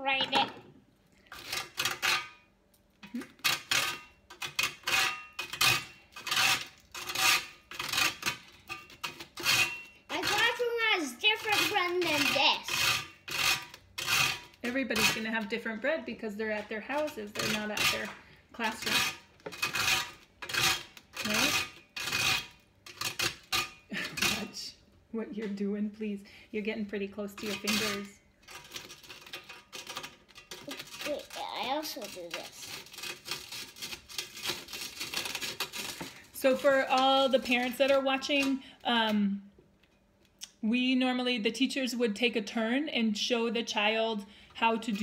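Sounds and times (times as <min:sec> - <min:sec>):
grater rattling on metal tray: 0:01.3 - 0:02.4, 0:03.1 - 0:24.6, 0:27.3 - 0:39.1, 0:44.6 - 0:45.0
toast grated on metal grater: 0:01.3 - 0:02.4, 0:03.1 - 0:15.5, 0:16.8 - 0:24.6, 0:27.4 - 0:38.5, 0:44.6 - 0:45.0.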